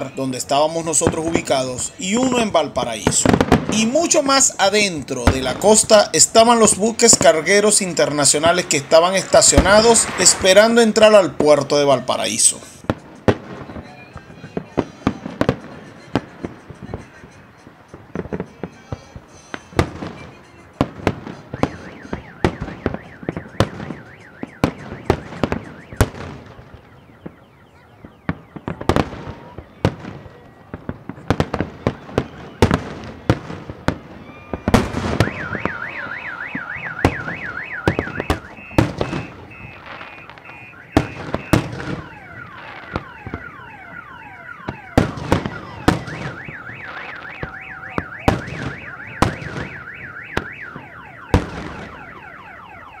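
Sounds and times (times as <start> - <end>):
car alarm warbling: 21.2 - 30.0, 34.2 - 53.0.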